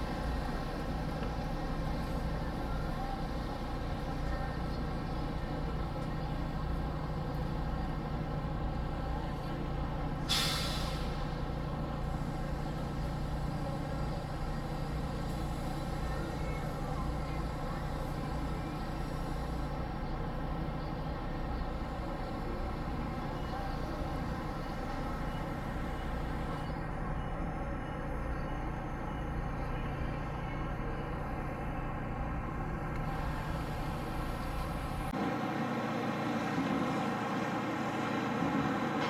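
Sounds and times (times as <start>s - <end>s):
bus engine running: 0.0s - 39.0s
air brake hiss: 10.2s - 16.0s.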